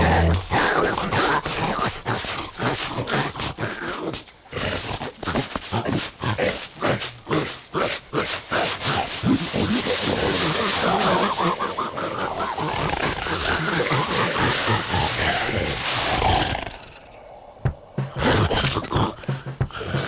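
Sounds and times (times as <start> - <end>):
grunts and growls: 0.0 - 20.0
scuffling thumps: 17.6 - 20.0.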